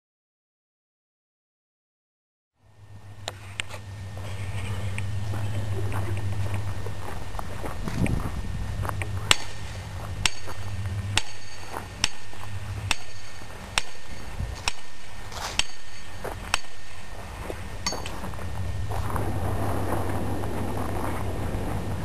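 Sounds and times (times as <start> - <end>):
hammer striking steel wedge: 9.3 - 9.6, 10.2 - 17.0, 17.8 - 18.3.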